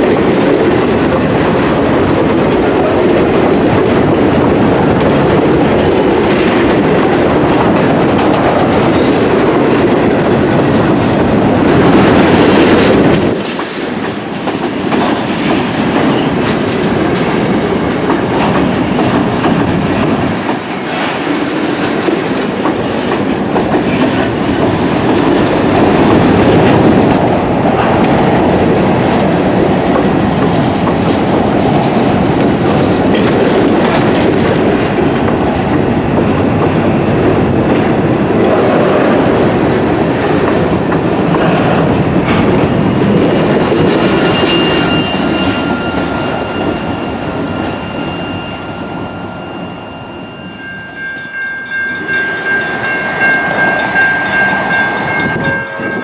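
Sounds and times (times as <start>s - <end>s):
train wheels clattering over rail joints: 0.0s - 48.0s
high-pitched wheel squeal: 44.0s - 50.8s.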